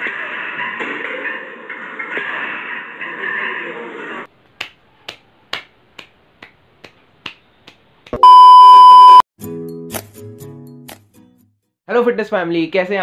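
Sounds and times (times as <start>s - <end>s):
music: 0.0s - 4.3s, 9.4s - 11.8s
fingers snapping: 4.6s - 8.2s
test-tone beep: 8.2s - 9.2s.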